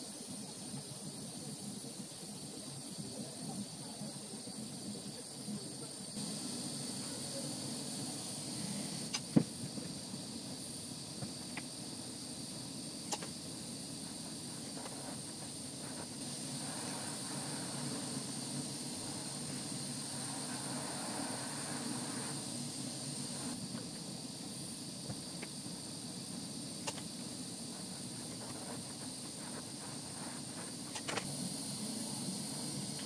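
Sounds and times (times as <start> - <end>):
gas torch flame hissing: 0.0 - 33.0.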